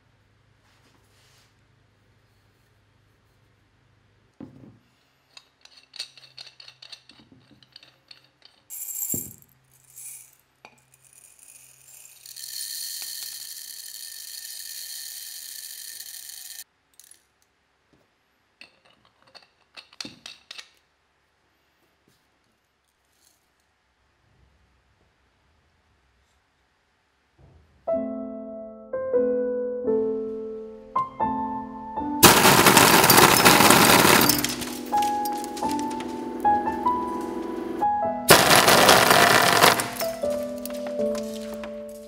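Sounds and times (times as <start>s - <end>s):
clicks and clinks: 5.3s - 17.3s
bbs rattling into metal tube: 5.4s - 17.2s, 32.2s - 37.4s, 38.3s - 42.0s.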